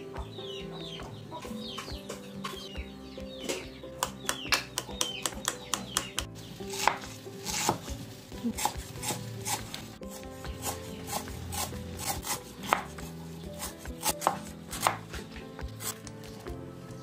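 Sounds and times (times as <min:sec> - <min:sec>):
hens clucking: 0:00.0 - 0:06.2.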